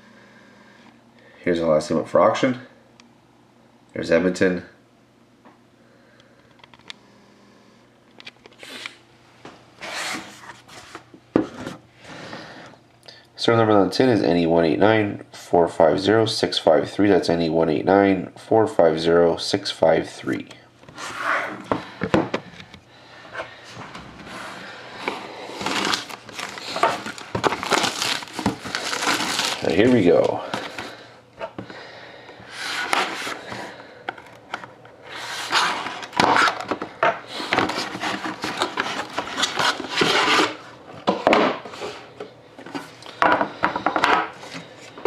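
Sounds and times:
handling card box: 0:24.2 - 0:31.0, 0:32.5 - 0:40.6
plastic shrink wrap crinkling: 0:25.0 - 0:30.9.

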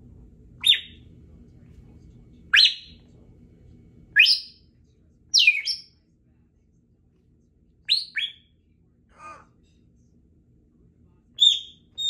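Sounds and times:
parrot whistled chirps: 0:00.6 - 0:01.0, 0:02.6 - 0:03.0, 0:04.2 - 0:04.6, 0:05.4 - 0:05.9, 0:07.9 - 0:08.5, 0:11.4 - 0:12.0.

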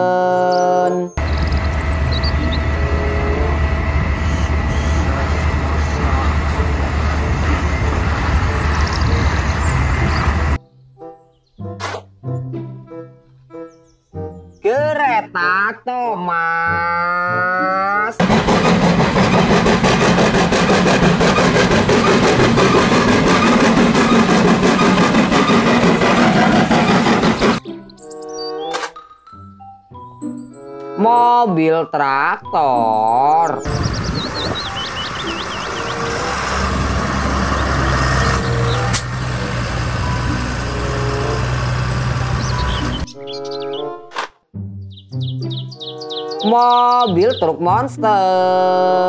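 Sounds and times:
steam locomotive chuffing: 0:01.2 - 0:10.6, 0:18.2 - 0:27.6, 0:33.7 - 0:43.0
tractor diesel engine running: 0:01.2 - 0:10.6, 0:18.2 - 0:27.6, 0:33.7 - 0:43.1
sharp click: 0:38.9 - 0:39.1.

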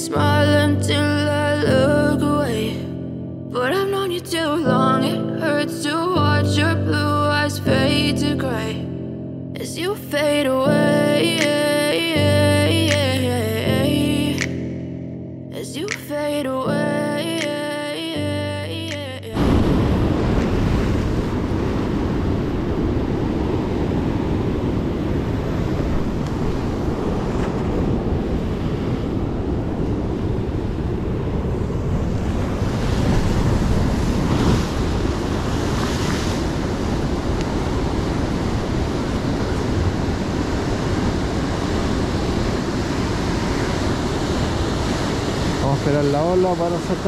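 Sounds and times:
surf breaking over rocks: 0:19.4 - 0:47.0
wind buffeting microphone: 0:19.4 - 0:47.0.

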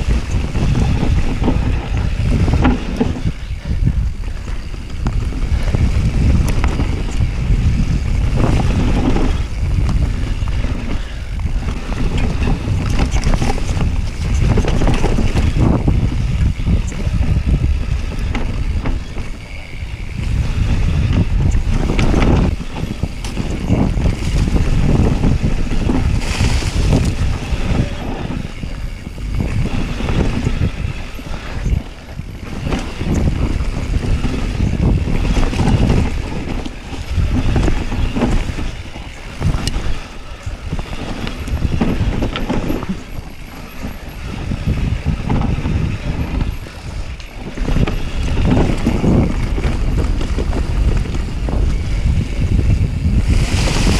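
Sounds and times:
bike rattling and knocking: 0:00.0 - 0:53.9
tyres running on dirt trail: 0:00.0 - 0:53.9
wind buffeting microphone: 0:00.0 - 0:53.9.

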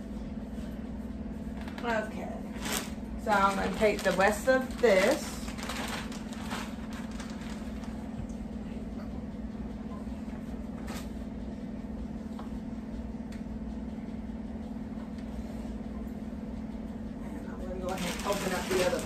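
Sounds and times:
kitchen appliance humming: 0:00.8 - 0:19.0.

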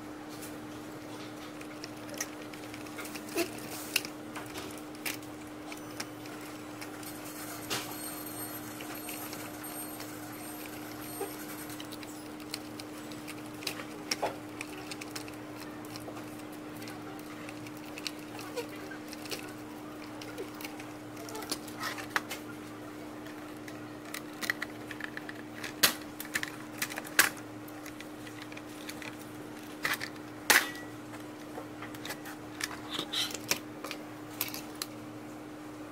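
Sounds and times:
steady low hum: 0:00.0 - 0:35.9
plastic parts clicking and knocking: 0:23.2 - 0:34.9.

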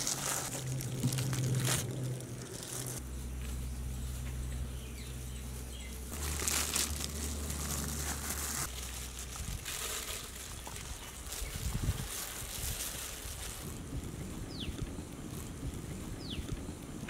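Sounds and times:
papery rustling of flour: 0:00.0 - 0:04.3, 0:05.4 - 0:14.2
low steady hum: 0:00.0 - 0:17.0.

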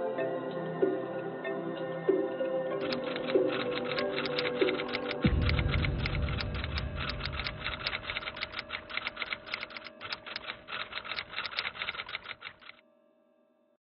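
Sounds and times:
keyboard typing clicks: 0:02.8 - 0:12.8
low rumble: 0:05.2 - 0:09.5.

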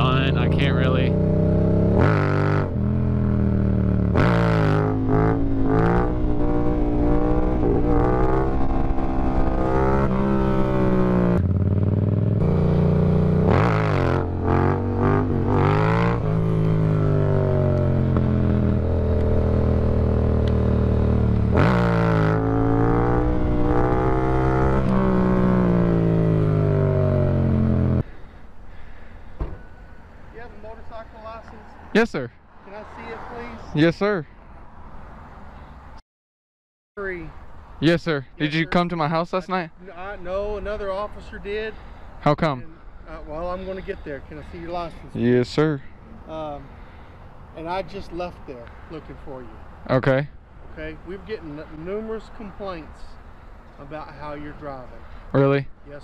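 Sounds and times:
motorcycle engine revving: 0:00.0 - 0:28.1.

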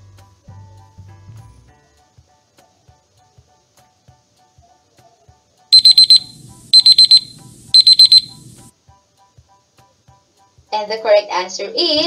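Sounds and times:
rapid high-pitched alarm beeps: 0:05.8 - 0:08.7.

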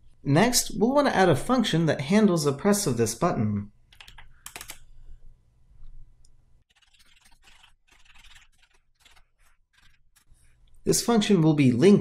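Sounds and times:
computer keyboard key clicks: 0:03.9 - 0:04.8.

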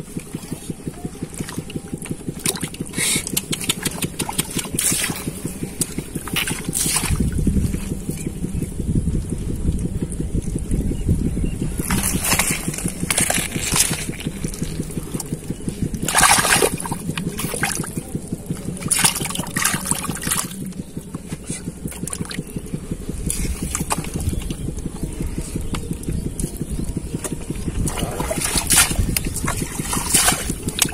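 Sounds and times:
low rumble: 0:00.0 - 0:30.9
hand squelching through mud: 0:11.8 - 0:18.0.

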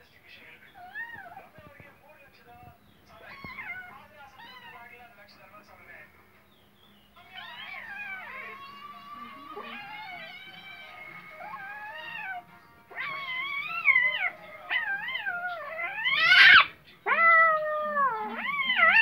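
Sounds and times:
kitten meowing: 0:00.8 - 0:01.5, 0:03.2 - 0:04.8, 0:07.2 - 0:08.6, 0:09.5 - 0:19.0.

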